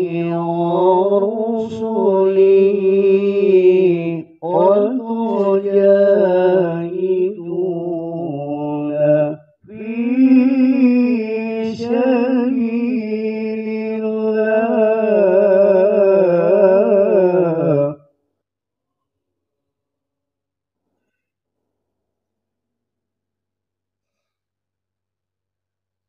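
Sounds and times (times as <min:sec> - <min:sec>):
man reciting melodically: 0:00.0 - 0:18.0.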